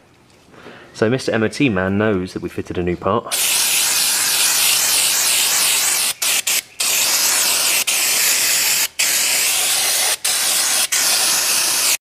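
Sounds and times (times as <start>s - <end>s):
aerosol can spraying hiss: 3.3s - 12.0s.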